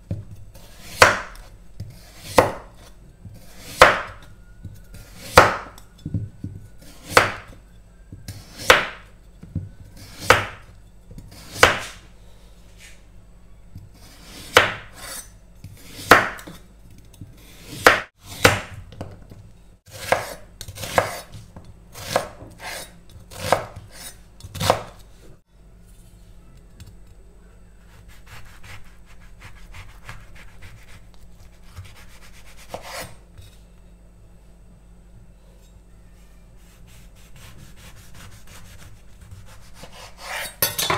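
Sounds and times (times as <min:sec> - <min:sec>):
knife chopping on wooden board: 0:00.1 - 0:05.8, 0:06.4 - 0:07.6, 0:08.3 - 0:09.1, 0:09.9 - 0:10.7, 0:11.3 - 0:12.0, 0:14.0 - 0:16.6, 0:17.6 - 0:19.2, 0:19.9 - 0:25.0.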